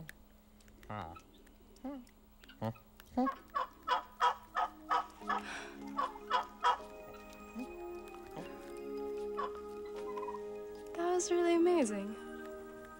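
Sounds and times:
vulture gobbling calls: 2.5 - 8.6, 9.2 - 10.8
soft music: 4.0 - 12.9.

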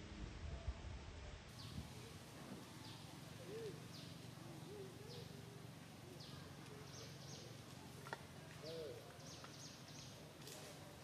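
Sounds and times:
soft low cooing: 3.4 - 3.9.

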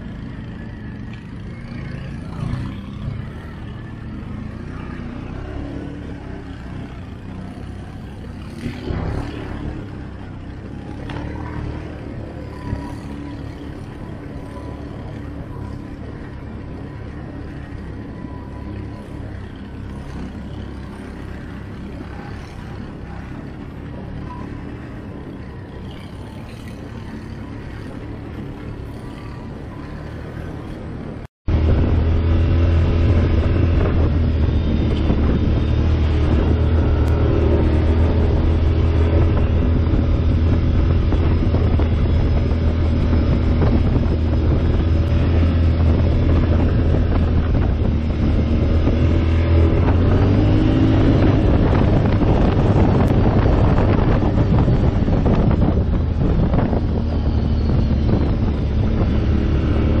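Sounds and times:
atv engine running: 0.0 - 60.0
wind on microphone: 21.9 - 60.0.

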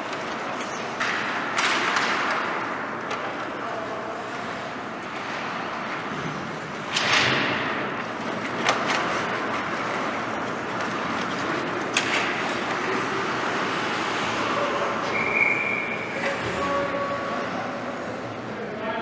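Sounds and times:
sharp cracks of sticks and pucks: 0.0 - 3.6, 6.9 - 15.4
hockey skates scraping on ice: 8.2 - 15.2.

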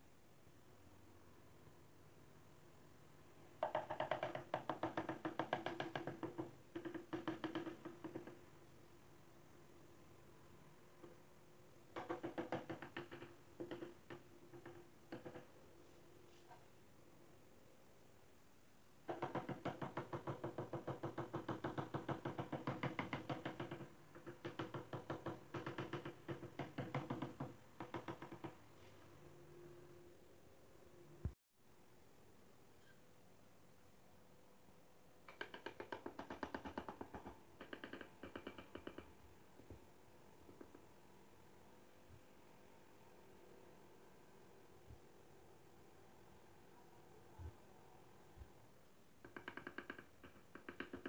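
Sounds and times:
hammer handle tapping on tile: 3.6 - 8.4, 12.0 - 15.5, 19.1 - 28.6, 35.3 - 39.1, 49.2 - 51.0.

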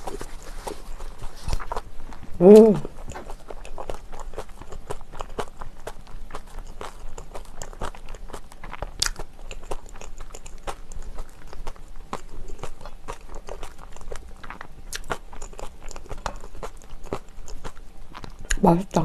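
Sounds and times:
close chewing with crunches: 0.0 - 19.0.

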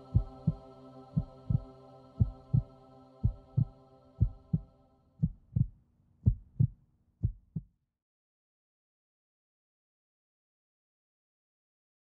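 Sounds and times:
droning chord: 0.0 - 5.0
heartbeat thumps: 0.1 - 0.6, 1.2 - 7.7.

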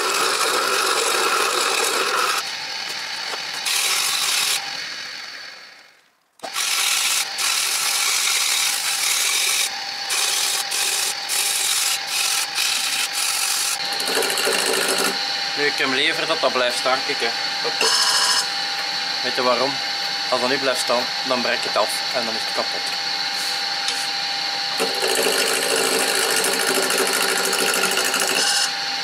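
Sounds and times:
sandpaper rubbing spinning wood: 0.0 - 5.0, 6.5 - 18.5, 23.3 - 28.7
chisel cutting spinning wood: 0.0 - 29.0
wood lathe humming: 0.0 - 29.0.

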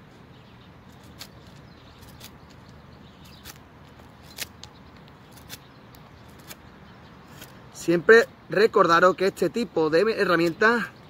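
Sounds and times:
knife shaving wood: 0.9 - 5.7, 6.3 - 6.6.

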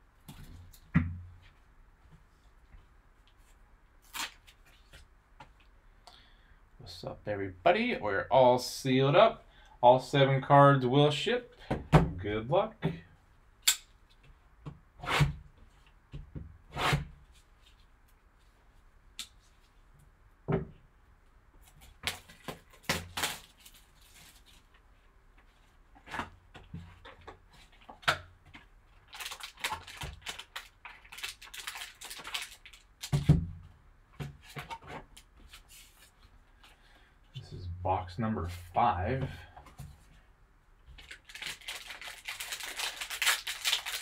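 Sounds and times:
plastic wrap being cut and peeled: 22.0 - 24.5, 29.0 - 33.4, 41.0 - 44.0
plastic wrap crinkling: 28.9 - 33.3, 41.0 - 44.0.

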